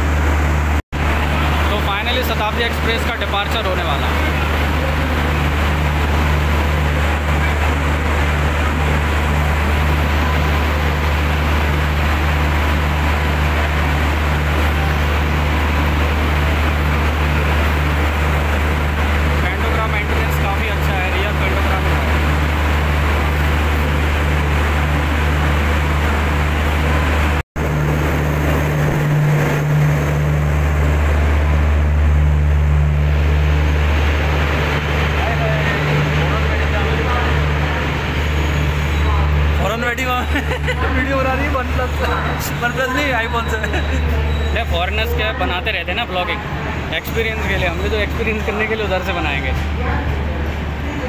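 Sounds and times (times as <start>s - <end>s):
electric locomotive low hum: 0.0s - 51.0s
generator power car drone: 0.0s - 51.0s
train coaches rumbling: 0.0s - 51.0s.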